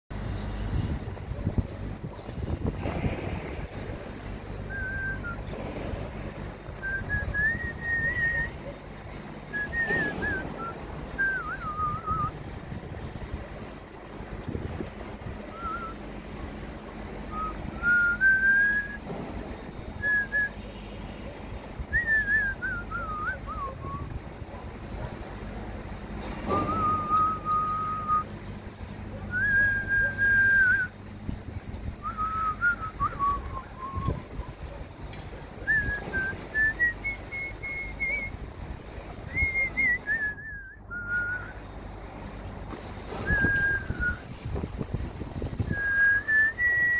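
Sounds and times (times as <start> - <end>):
wind buffeting microphone: 0.1 - 20.6, 21.4 - 46.9
person whistling a tune: 4.7 - 5.5, 6.8 - 8.6, 9.5 - 12.4, 15.5 - 16.0, 17.3 - 19.0, 20.0 - 20.6, 21.9 - 24.1, 26.5 - 28.3, 29.3 - 30.9, 32.0 - 34.3, 35.6 - 38.4, 39.3 - 41.6, 43.2 - 44.3, 45.7 - 46.9.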